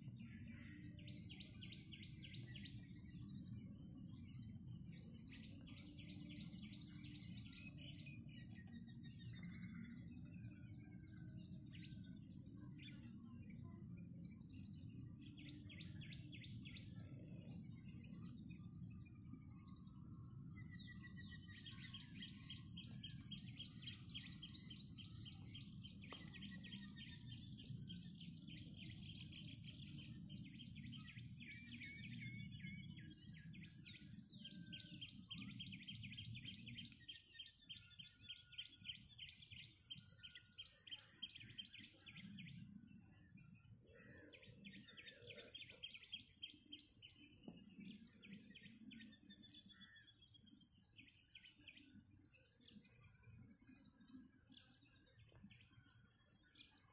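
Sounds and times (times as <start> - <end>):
small birds chirping: 0.0 - 56.9.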